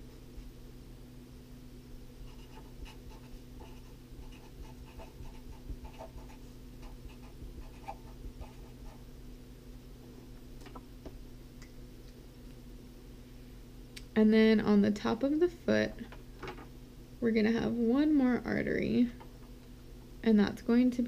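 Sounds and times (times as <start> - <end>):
low steady hum: 0.0 - 21.0
marker writing on paper: 2.2 - 9.0.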